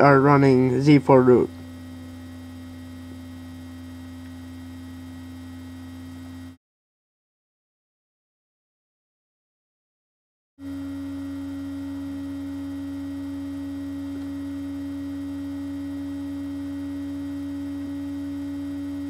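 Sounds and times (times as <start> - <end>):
electrical hum: 0.0 - 6.6, 10.6 - 19.0.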